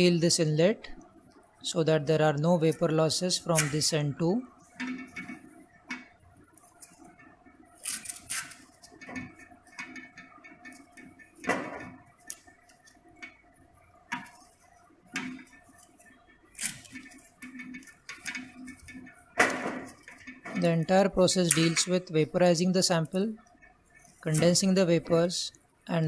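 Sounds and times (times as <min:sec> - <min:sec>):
knocks and rustles on metal tank: 0:08.6 - 0:12.2, 0:16.9 - 0:20.8.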